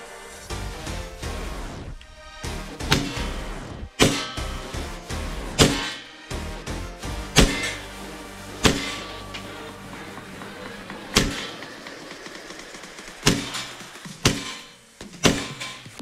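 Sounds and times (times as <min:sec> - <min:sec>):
background music: 0:00.0 - 0:16.0
airsoft gun shots: 0:04.0 - 0:04.5, 0:05.6 - 0:06.0, 0:07.4 - 0:07.8, 0:08.6 - 0:09.0, 0:13.2 - 0:15.8.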